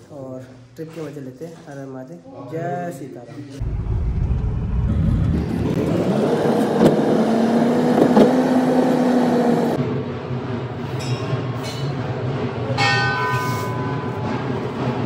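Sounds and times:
car engine droning: 0:03.6 - 0:10.8.

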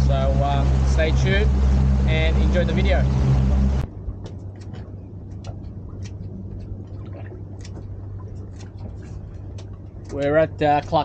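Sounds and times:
rushing water: 0:00.0 - 0:03.8
boat motor running: 0:00.0 - 0:11.0
low steady hum: 0:00.0 - 0:11.0.

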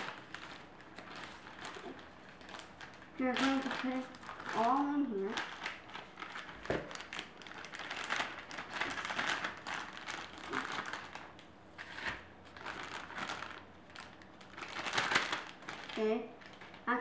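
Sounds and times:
plastic bag and gloves crinkling: 0:00.0 - 0:17.0.

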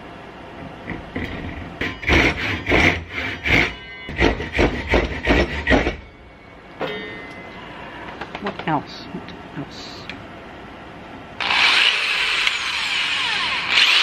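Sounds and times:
hand saw cutting wood: 0:01.8 - 0:06.0.

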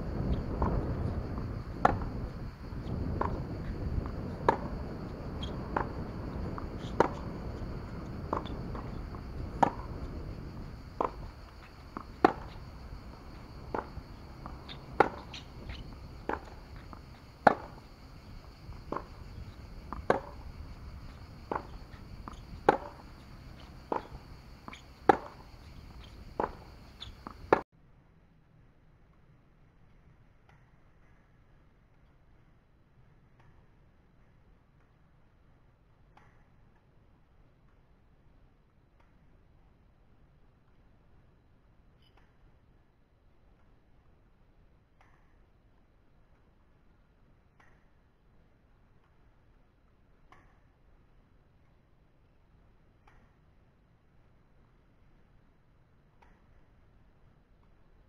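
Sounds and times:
wind rumble on microphone: 0:00.0 - 0:27.6
tennis balls struck by rackets: 0:00.2 - 0:27.6.

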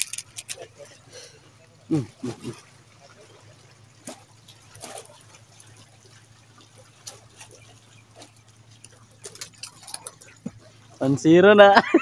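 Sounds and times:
small clicks: 0:00.0 - 0:00.6
water trickling and dripping: 0:00.0 - 0:12.0.

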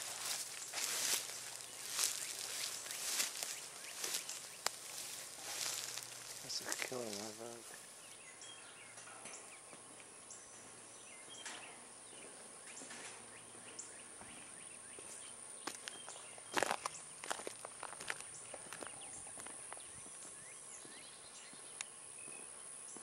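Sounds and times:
steady high hiss: 0:00.0 - 0:12.0
bird chirps: 0:00.0 - 0:17.2.

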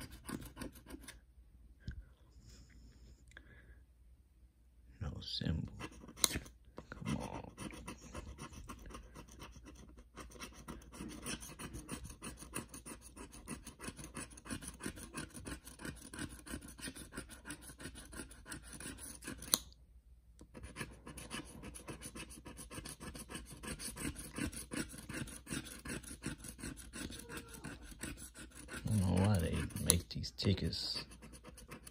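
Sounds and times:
metal tag scraping scratch ticket: 0:00.0 - 0:01.2, 0:07.5 - 0:19.6, 0:20.6 - 0:31.9.

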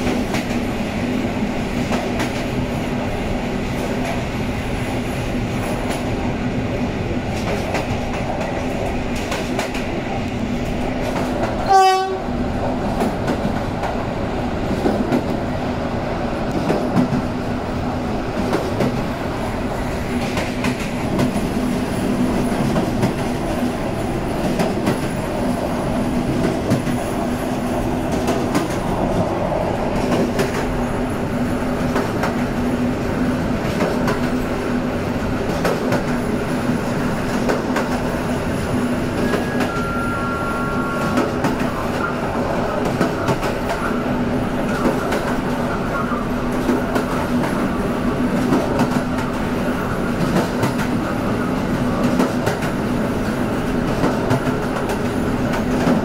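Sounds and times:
diesel locomotive engine hum: 0:00.0 - 0:56.0
wheel squeal: 0:39.2 - 0:41.2.

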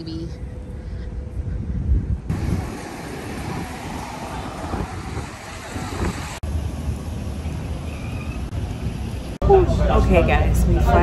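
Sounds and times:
wind rumbling on microphone: 0:00.0 - 0:09.4
traffic going by: 0:02.3 - 0:11.0.

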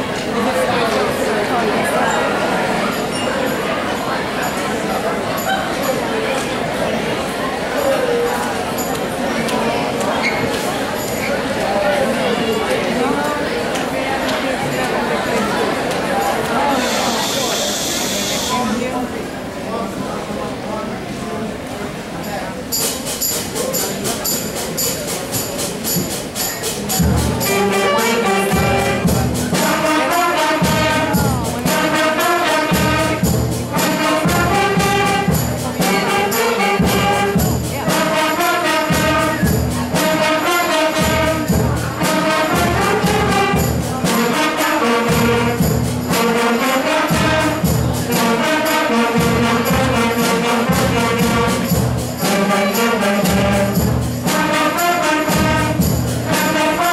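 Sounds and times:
concert band playing pop tune: 0:15.3 - 0:18.8, 0:22.8 - 0:56.9
steady percussion beat: 0:22.6 - 0:56.9.

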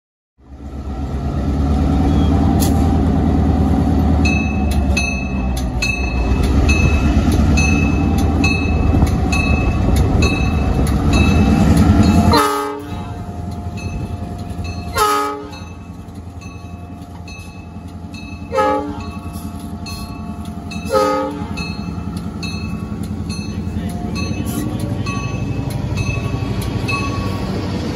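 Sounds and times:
diesel locomotive rumble: 0:00.4 - 0:27.9
train horn blasts: 0:12.2 - 0:13.2, 0:14.9 - 0:15.7, 0:18.5 - 0:19.2, 0:20.9 - 0:21.6.

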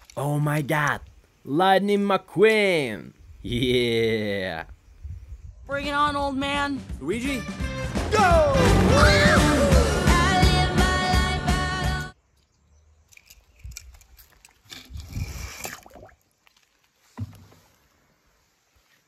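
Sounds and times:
music playing: 0:06.3 - 0:12.1.

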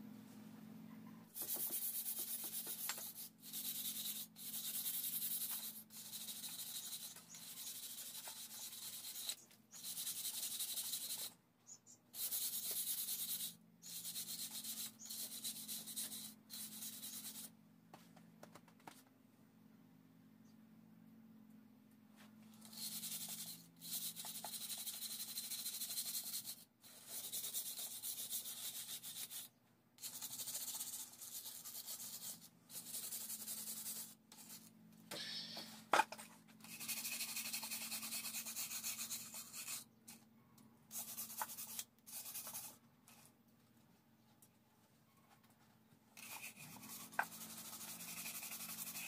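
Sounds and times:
wire brush scrubbing metal: 0:46.2 - 0:49.0.

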